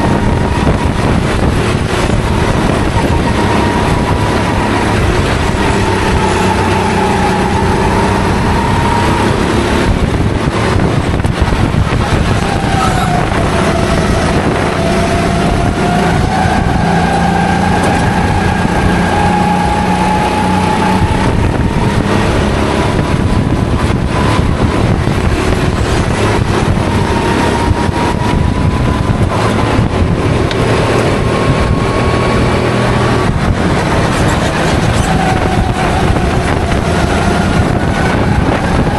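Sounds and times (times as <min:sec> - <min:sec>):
dense rush of noise: 0:00.0 - 0:38.9
kart engine revving: 0:00.0 - 0:38.9.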